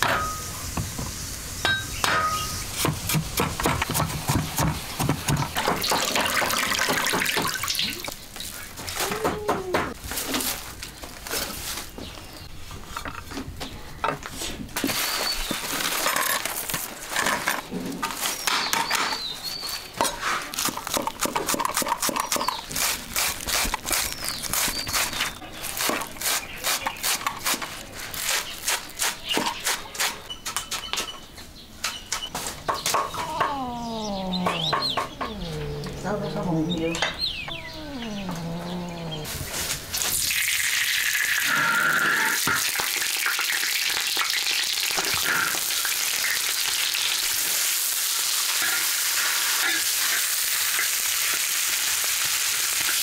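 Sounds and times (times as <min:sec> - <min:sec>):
bird chirps: 0:30.2 - 0:39.3
animal call falling in pitch: 0:33.1 - 0:36.0, 0:37.5 - 0:39.3.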